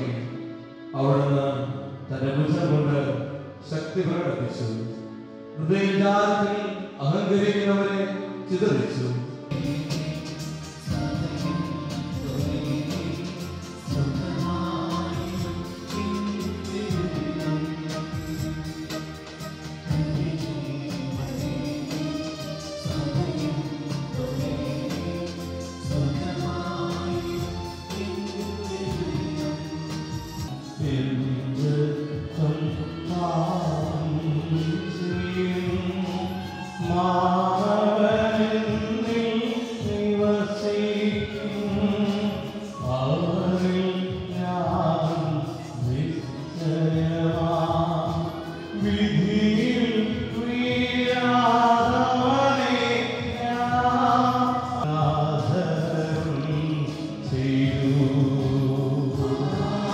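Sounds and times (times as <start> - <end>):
electronic keyboard: 0.0 - 59.9
choir singing a hymn: 19.9 - 30.4, 56.4 - 59.9.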